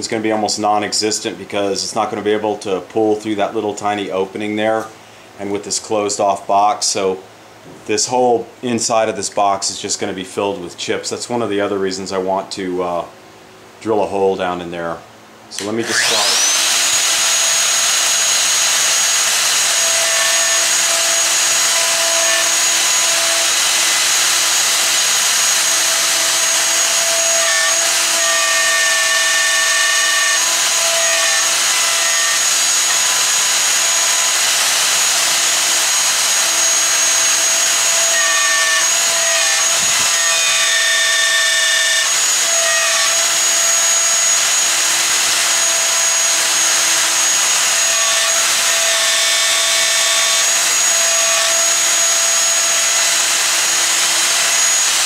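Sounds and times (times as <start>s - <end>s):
router whining: 15.6s - 55.0s.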